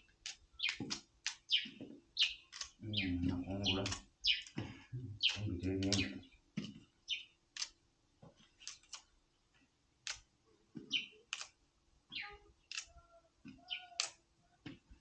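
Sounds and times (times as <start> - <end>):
bananas snapping: 7.5 - 7.8, 8.6 - 9.1, 10.0 - 10.3, 11.3 - 11.6, 12.7 - 13.0, 14.0 - 14.2.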